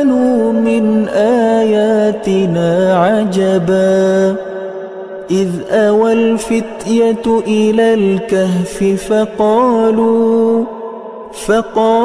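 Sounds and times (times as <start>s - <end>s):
person chanting melodically: 0.0s - 12.0s.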